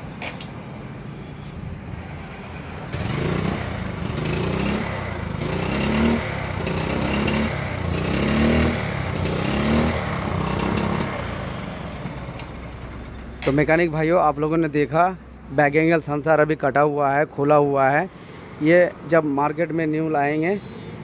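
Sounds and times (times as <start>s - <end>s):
motorcycle engine revving: 2.8s - 13.1s.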